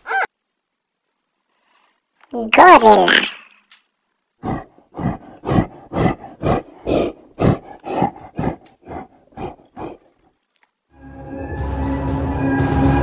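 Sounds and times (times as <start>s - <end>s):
gorilla short calls: 0.0s - 0.3s.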